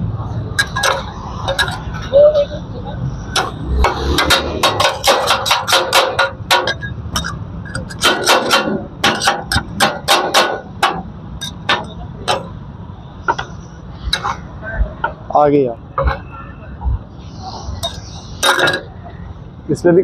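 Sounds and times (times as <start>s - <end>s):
metal spatulas clanking on griddle: 0.6s - 1.9s, 3.3s - 12.5s, 17.8s - 18.9s.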